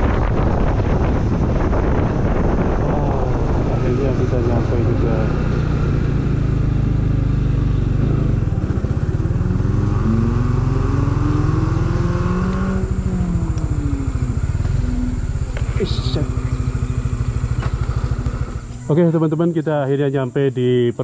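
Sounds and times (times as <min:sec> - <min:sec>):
motorcycle engine revving: 0:00.0 - 0:19.9.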